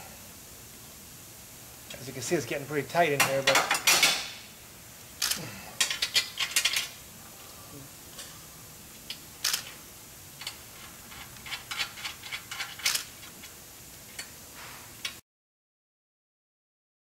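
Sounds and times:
metallic clicks of bolts and nuts: 5.2 - 6.9, 10.4 - 13.6.

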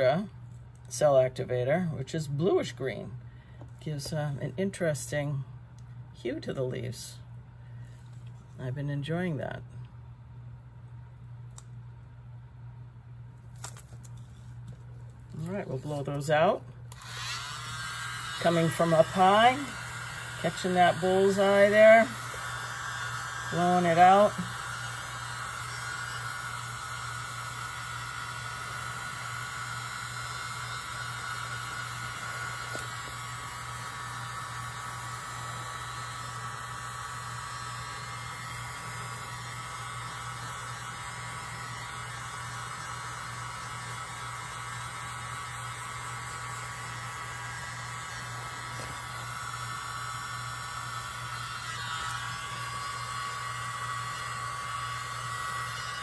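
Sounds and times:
hair dryer running: 15.3 - 56.0.

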